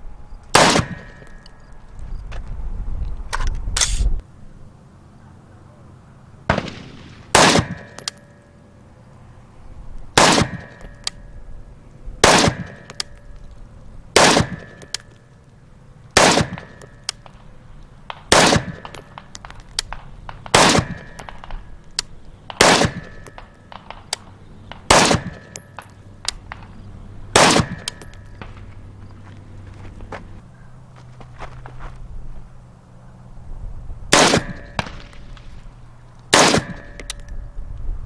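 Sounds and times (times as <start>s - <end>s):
rifle single shots ringing: 0.5s - 1.6s, 6.5s - 8.4s, 10.2s - 11.2s, 12.2s - 13.3s, 14.2s - 15.2s, 16.2s - 17.4s, 18.1s - 26.7s, 27.3s - 28.6s, 34.1s - 35.5s, 36.3s - 37.4s.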